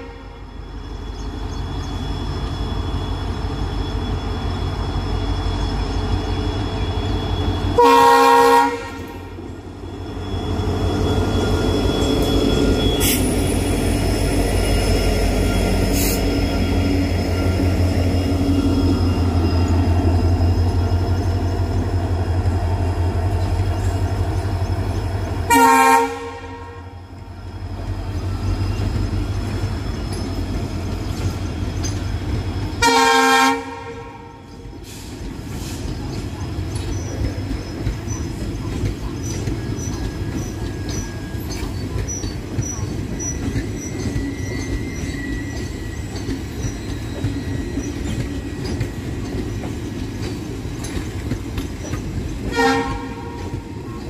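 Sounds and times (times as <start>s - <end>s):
train horn chords: 0.0s - 0.5s, 7.8s - 9.4s, 25.5s - 26.9s, 32.8s - 34.4s, 52.4s - 53.7s
train wheels clickety-clack on rails: 0.0s - 54.0s.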